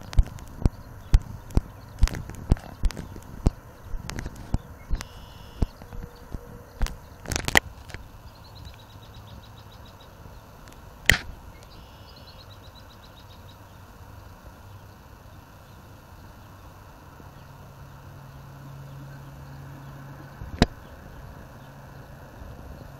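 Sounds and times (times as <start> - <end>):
sharp clicks: 0.0 - 8.0
traffic hum: 0.0 - 22.9.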